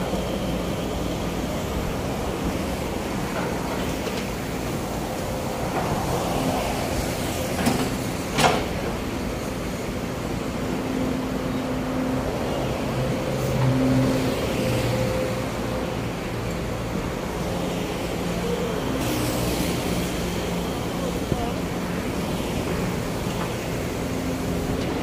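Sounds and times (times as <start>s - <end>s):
excavator diesel engine under load: 0.0s - 25.0s.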